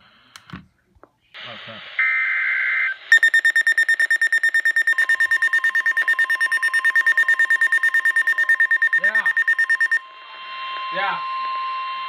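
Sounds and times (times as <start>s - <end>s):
rapid high-pitched alarm beeps: 3.1s - 10.0s.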